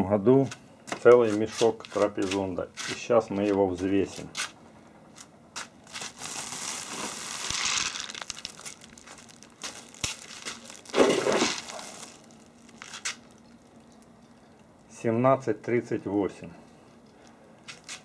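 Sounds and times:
plastic sack of nuts rustling: 5.6 - 13.9.

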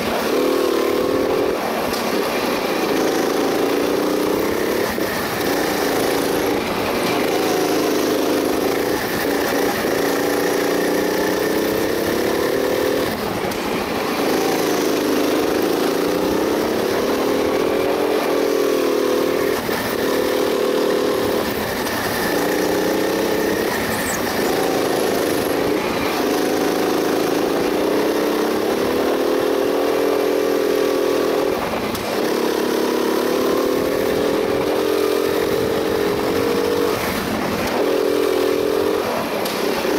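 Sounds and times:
go-kart engine running hard: 0.0 - 39.9.

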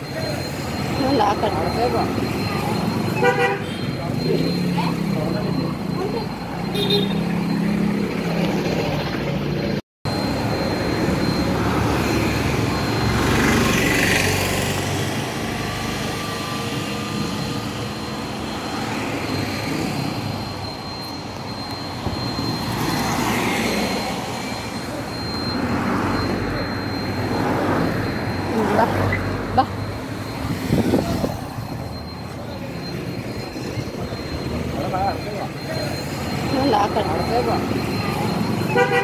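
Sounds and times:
cars and motorcycles: 0.0 - 39.0
vehicle passing close: 4.0 - 20.4, 22.4 - 38.7.

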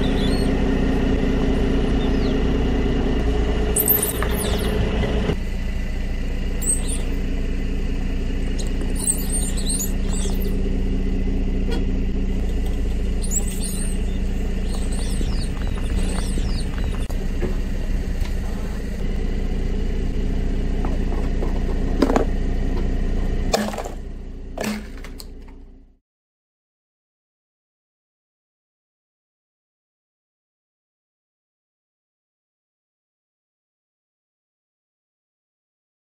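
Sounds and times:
rubber ducks squeaking: 0.0 - 0.6, 1.9 - 2.5, 3.7 - 5.0, 6.5 - 7.2, 8.4 - 10.6, 11.6 - 19.0
car engine running slowly: 0.0 - 26.0.

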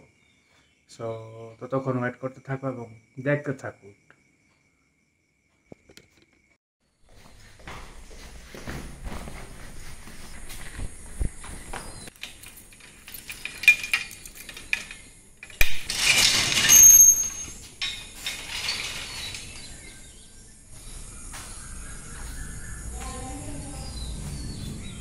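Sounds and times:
metal gate latch clicks and clinks: 12.1 - 19.7
metal gate scraping clatter: 12.1 - 20.0.

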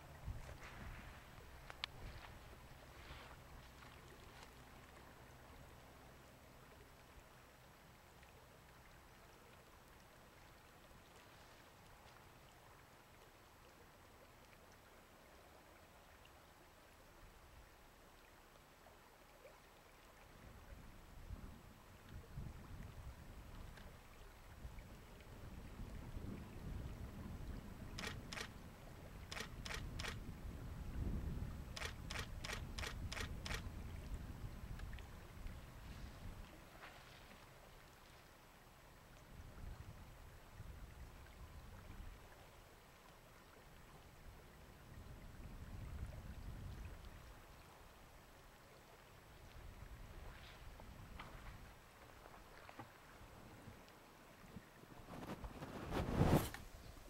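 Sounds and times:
wind rumble on microphone: 0.0 - 3.5, 20.4 - 36.9, 39.2 - 42.3, 43.8 - 47.6, 49.3 - 53.8, 54.4 - 57.0
faint click: 1.6 - 2.0
camera shutter clicks: 28.0 - 28.5, 29.3 - 30.2, 31.8 - 33.6.

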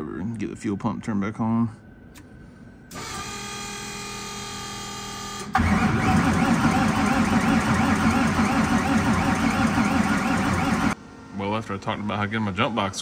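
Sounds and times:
electric fuel pump whining: 5.4 - 11.0
starter motor cranking engine: 5.6 - 11.0.

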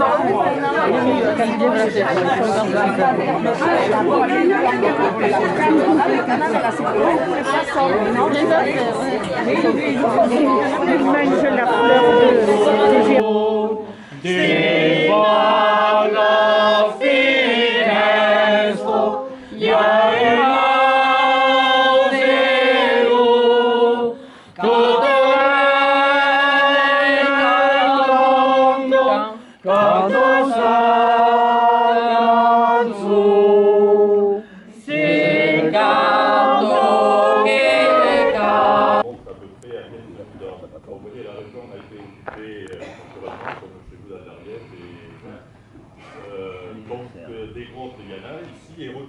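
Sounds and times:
group singing unaccompanied: 0.0 - 39.2.

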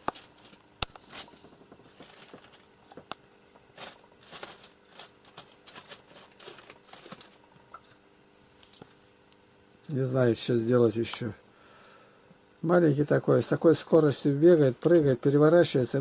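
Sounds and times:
kitten rustling on newspapers: 0.0 - 2.7, 3.7 - 7.4.

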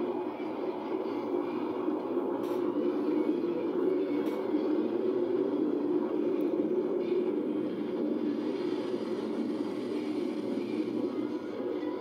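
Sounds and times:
jet engines overhead: 0.0 - 12.0.

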